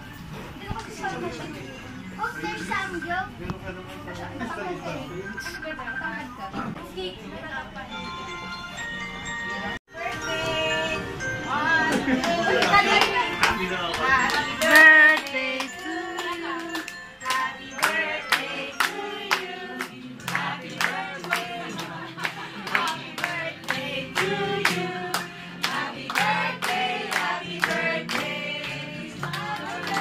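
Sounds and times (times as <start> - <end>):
people singing: 9.9 - 13.2, 13.9 - 30.0
people clapping in time: 12.2 - 30.0.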